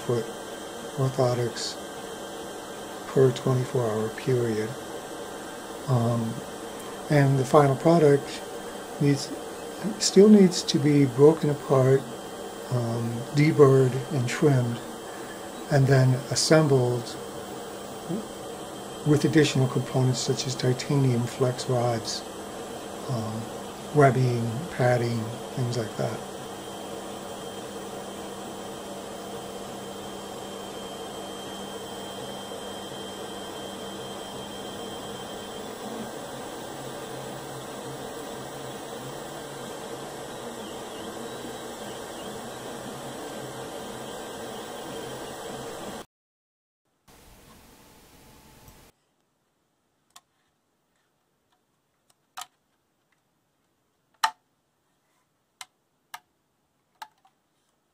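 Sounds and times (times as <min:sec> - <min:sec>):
printer fans and motors whirring: 0:00.0 - 0:46.0
steady hiss: 0:00.0 - 0:46.0, 0:47.0 - 0:49.0
plastic clicks and knocks: 0:54.1 - 0:54.4, 0:56.9 - 0:57.4.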